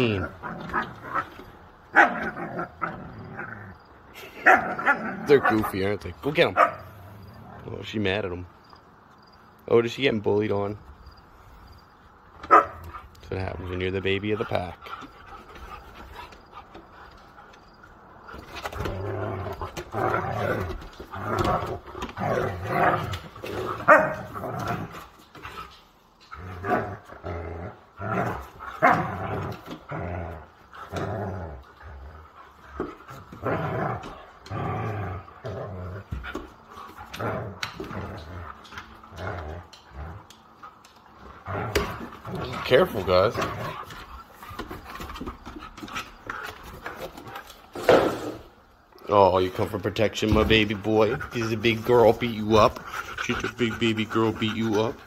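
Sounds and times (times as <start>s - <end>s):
dogs growling: 0.0s - 8.0s, 12.4s - 55.0s
dogs barking: 1.9s - 3.0s, 4.3s - 5.8s, 6.4s - 7.0s, 12.4s - 13.1s, 23.8s - 24.4s.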